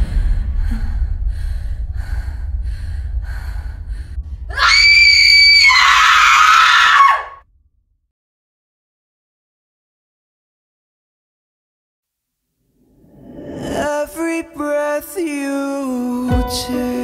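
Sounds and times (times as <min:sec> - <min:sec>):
low pulsing drone: 0:00.0 - 0:05.1
woman screaming: 0:04.5 - 0:07.4.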